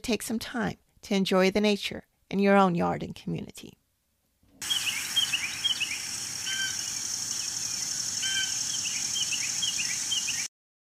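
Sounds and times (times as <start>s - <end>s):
birds chirping: 4.6s - 10.5s
louder bird calls: 4.6s - 10.5s
steady high-pitched hiss: 4.6s - 10.5s.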